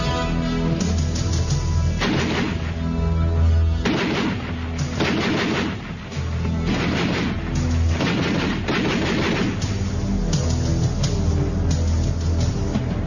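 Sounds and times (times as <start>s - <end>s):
background music: 0.0s - 13.0s
gunfire bursts: 2.0s - 2.9s, 3.8s - 9.9s.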